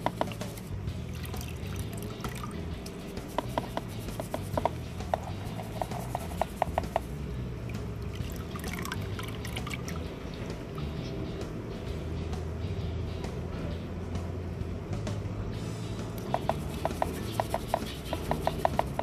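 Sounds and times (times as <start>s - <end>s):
water sloshing in a colander: 0.0s - 10.1s.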